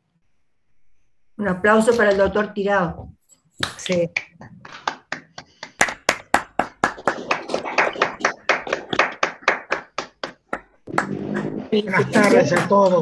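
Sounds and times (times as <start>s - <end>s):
hands clapping: 3.6s - 13.0s.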